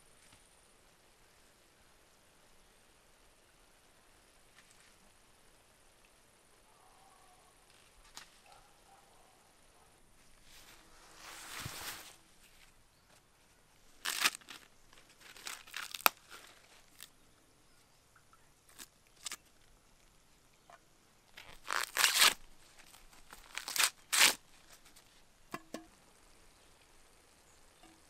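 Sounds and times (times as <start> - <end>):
corn husks being ripped off: 14.0 - 17.1, 18.7 - 19.5, 21.3 - 25.1.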